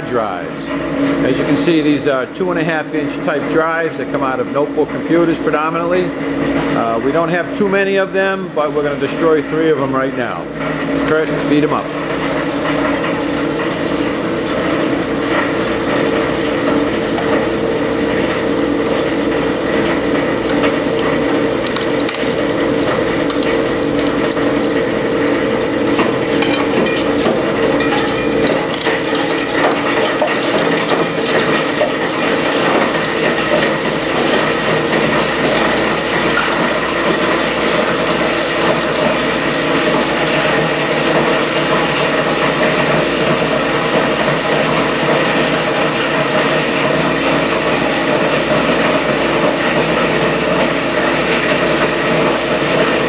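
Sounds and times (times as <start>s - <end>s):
drives rattling and cracking: 12.2s - 50.7s.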